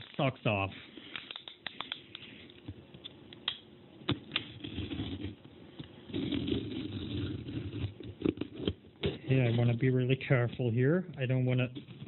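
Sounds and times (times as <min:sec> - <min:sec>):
blade scraping along tape: 0:06.1 - 0:09.7.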